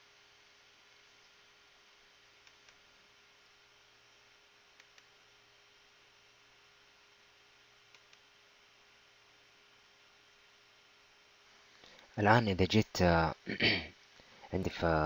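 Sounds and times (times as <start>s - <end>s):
faint electrical hum: 0.0s - 15.0s
computer mouse clicks: 2.4s - 2.8s, 4.8s - 5.2s, 7.9s - 8.3s.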